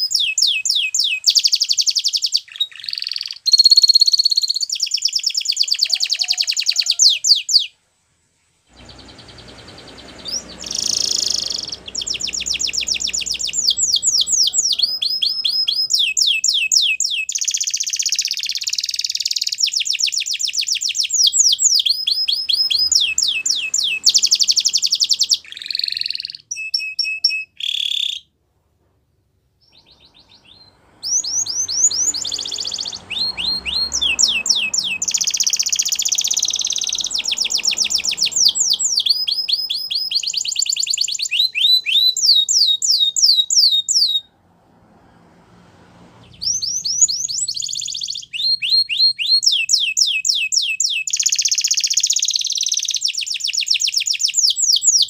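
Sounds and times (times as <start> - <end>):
canary singing trills: 0.0 - 7.7, 8.7 - 28.3, 29.6 - 44.3, 46.2 - 55.0.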